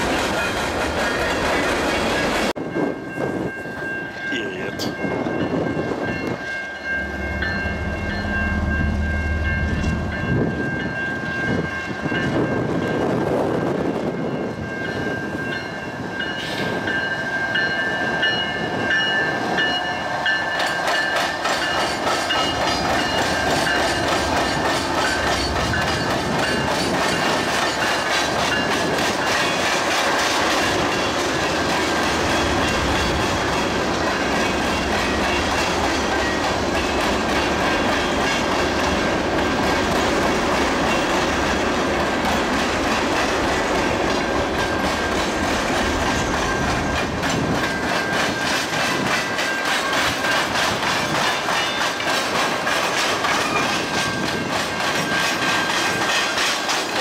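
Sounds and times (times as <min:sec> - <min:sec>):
steady high ringing tones: 0:02.8 - 0:12.6
diesel locomotive rumble: 0:05.0 - 0:14.1, 0:18.0 - 0:49.2
train wheels clattering over rail: 0:20.5 - 0:57.0.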